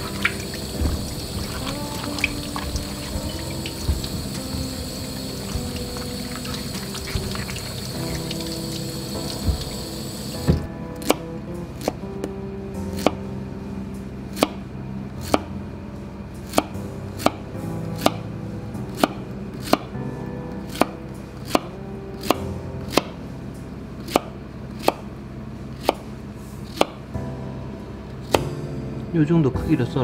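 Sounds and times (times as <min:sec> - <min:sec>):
soft background music: 0:00.0 - 0:30.0.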